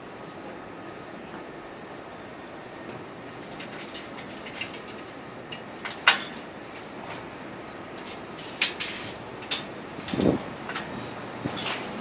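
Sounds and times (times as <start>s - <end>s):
steady background noise: 0.0s - 12.0s
metal frame clanking: 3.3s - 6.5s, 7.9s - 12.0s.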